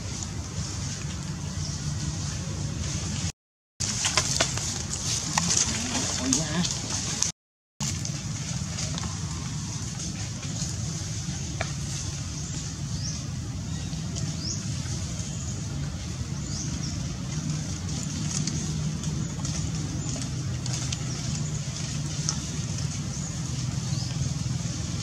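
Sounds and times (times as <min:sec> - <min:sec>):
low motor drone: 0:05.5 - 0:25.0.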